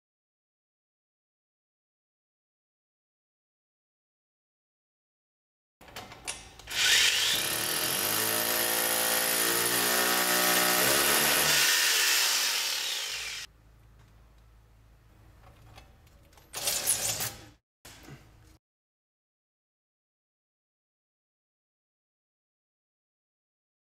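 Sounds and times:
power drill running under load: 6.7 - 13.5.

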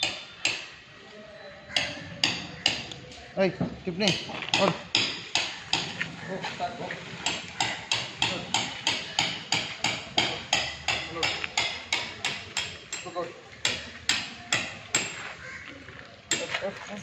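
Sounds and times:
faint voices: 8.1 - 17.0.

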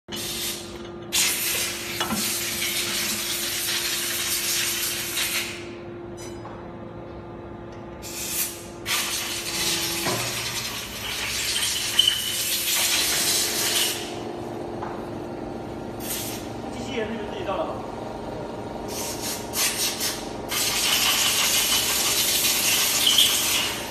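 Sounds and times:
machine hissing air: 0.1 - 5.8, 8.0 - 14.2, 15.9 - 16.6, 18.8 - 23.9
steady low hum: 0.2 - 23.9.

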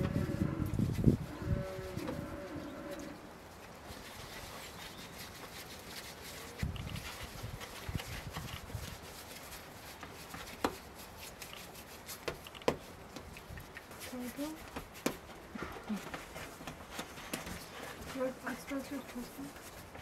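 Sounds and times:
hands patting dough: 3.9 - 18.3.

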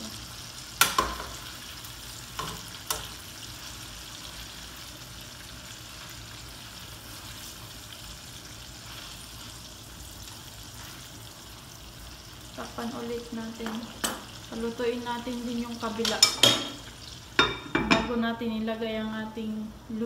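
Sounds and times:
chicken sizzling in oil: 0.0 - 20.0
metal tongs clicking on pan: 2.4 - 3.1.

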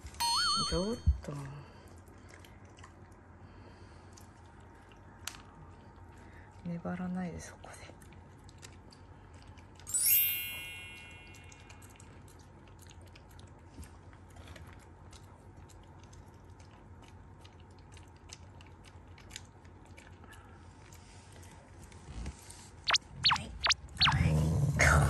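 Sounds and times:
bright chime: 0.0 - 1.1, 9.9 - 11.8
dog crunching dry kibble: 11.7 - 21.0.

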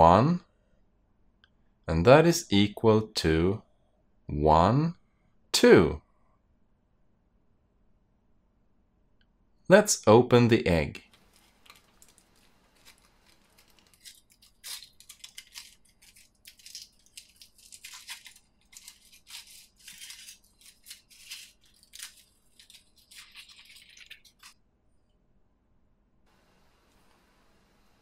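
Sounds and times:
foil wrapper crinkling and tearing: 11.1 - 24.6.

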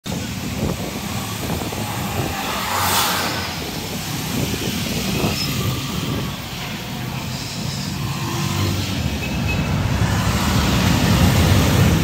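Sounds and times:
street traffic: 0.0 - 12.0
vehicle passing close: 0.5 - 6.5.

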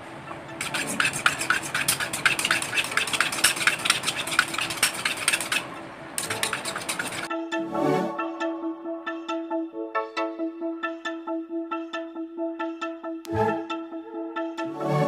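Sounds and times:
knife scraping on sharpening stone: 0.6 - 7.3
music: 7.3 - 15.0.

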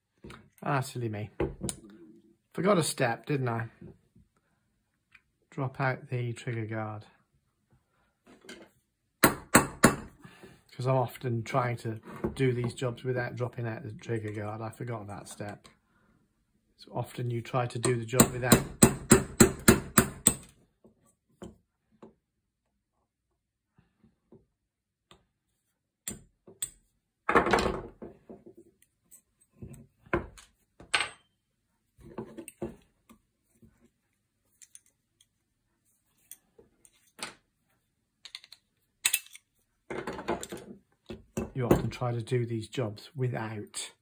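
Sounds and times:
metal parts clicking and clinking: 34.5 - 35.3, 38.2 - 39.5.

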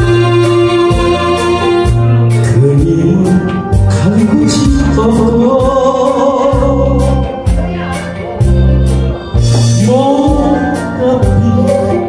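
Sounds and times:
backing track with drums and bass: 0.0 - 12.0
man singing into microphone: 2.3 - 8.1, 9.4 - 12.0.

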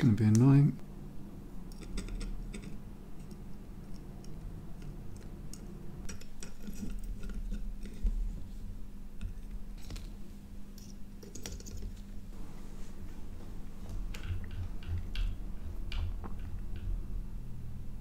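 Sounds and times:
faint steady low hum: 0.0 - 18.0.

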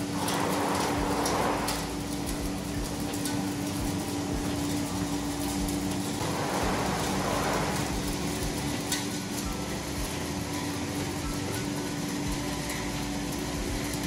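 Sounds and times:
rushing noise: 0.0 - 2.0, 6.2 - 8.6
machinery motor hum: 0.0 - 14.0.

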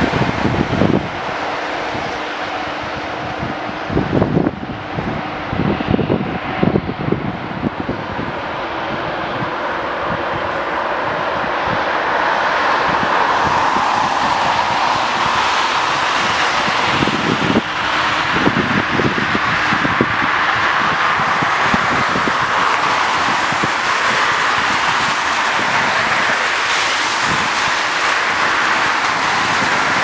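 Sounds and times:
jet engines whining: 0.0 - 30.0
wind buffeting microphone: 0.0 - 30.0.

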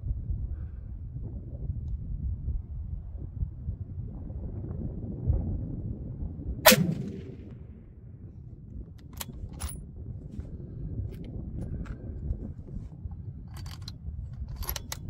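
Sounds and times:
low wind rumble: 0.0 - 15.0
rifle bolt clicks: 6.7 - 7.2, 13.6 - 15.0
rifle shot: 6.7 - 7.6.

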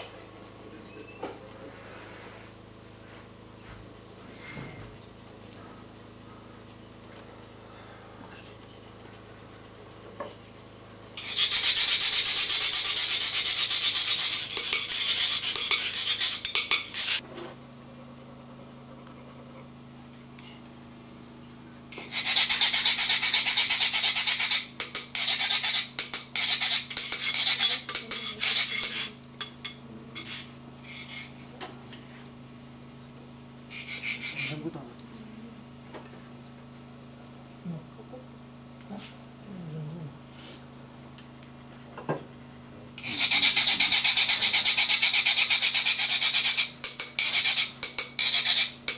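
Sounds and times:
metal funnel rasped with scraper rod: 11.2 - 17.2, 21.9 - 31.4, 33.7 - 34.6, 43.0 - 48.9.

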